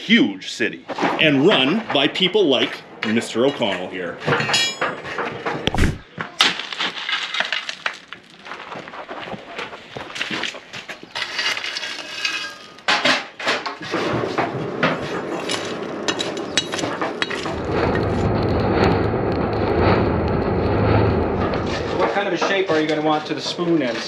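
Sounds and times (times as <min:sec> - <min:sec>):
metal tools clinking: 0:03.5 - 0:05.0, 0:11.2 - 0:12.9
steady rushing noise: 0:05.7 - 0:06.0, 0:14.3 - 0:23.0.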